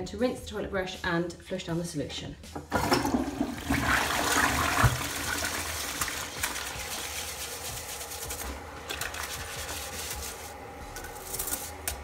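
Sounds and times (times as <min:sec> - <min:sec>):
toilet flush water rushing: 0:02.7 - 0:07.1
toilet brush swishing: 0:03.7 - 0:12.0.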